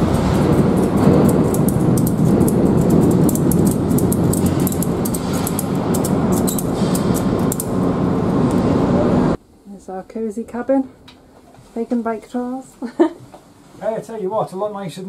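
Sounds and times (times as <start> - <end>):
rumble of vehicles overhead: 0.0 - 9.9.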